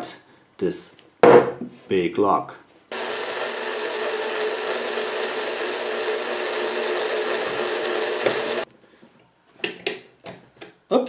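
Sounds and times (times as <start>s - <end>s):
cordless drill driving screw: 2.9s - 8.7s.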